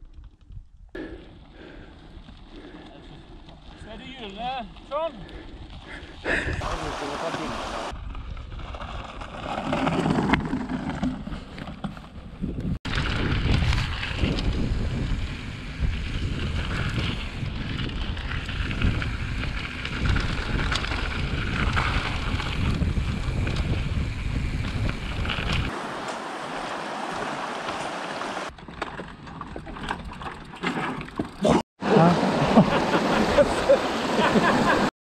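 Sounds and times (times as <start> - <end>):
bike rattling: 0.0 - 31.6
wind buffeting microphone: 12.3 - 25.8.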